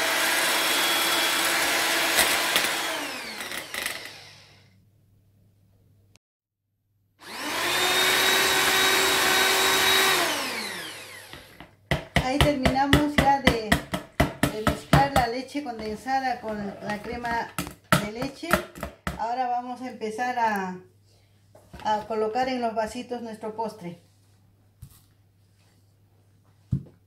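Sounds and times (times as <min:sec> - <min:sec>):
electric mixer whipping cream: 0:00.0 - 0:04.7, 0:07.2 - 0:11.7.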